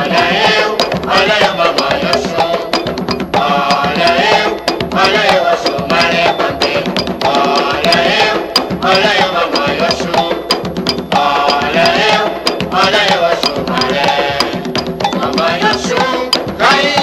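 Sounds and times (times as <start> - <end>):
person singing: 0.0 - 2.8, 3.4 - 10.6, 11.2 - 17.0
drums: 0.0 - 17.0
wood-block-like percussion strokes: 0.0 - 17.0.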